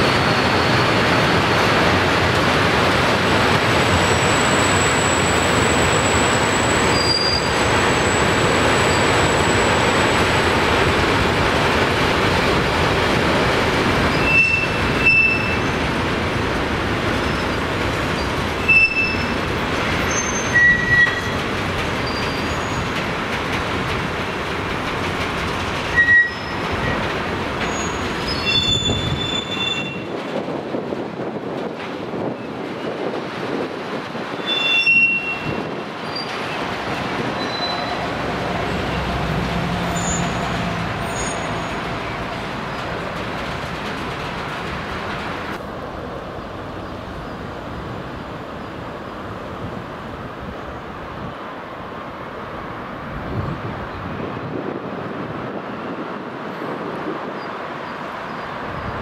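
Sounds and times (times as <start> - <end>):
train wheels on rail: 0.0 - 59.0
high wheel squeals: 3.8 - 10.4, 14.0 - 15.9, 17.2 - 23.0, 25.8 - 30.1, 34.3 - 36.6, 37.2 - 43.5.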